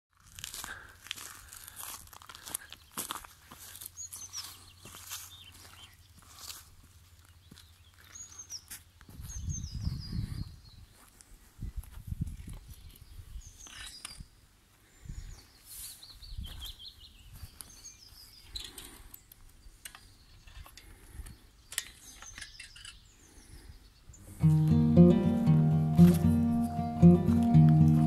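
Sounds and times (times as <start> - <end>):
footsteps on forest ground: 0.1 - 10.0, 10.9 - 12.8, 24.6 - 28.0
songbirds singing: 2.8 - 6.6, 7.2 - 11.5, 12.3 - 25.2.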